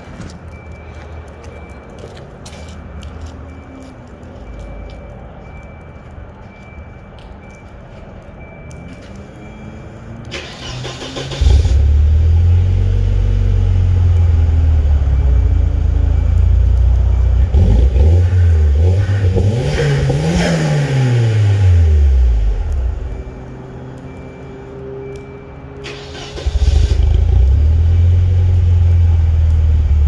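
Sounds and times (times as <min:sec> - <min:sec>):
car engine starting and idling: 0:10.2 - 0:16.3, 0:25.8 - 0:30.0
car engine revving: 0:17.5 - 0:22.3.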